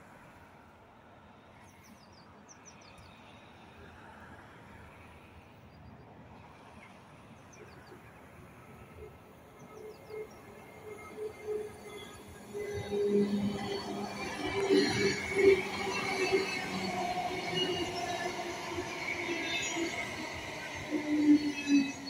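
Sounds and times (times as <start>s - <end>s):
electric train approaching: 8.0s - 22.0s.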